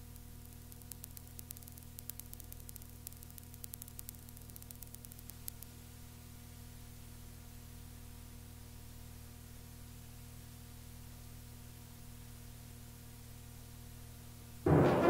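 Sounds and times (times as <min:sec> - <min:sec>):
faint crackling clicks: 0:00.0 - 0:05.8
cassette tape hiss: 0:00.0 - 0:14.6
electrical hum: 0:00.0 - 0:15.0.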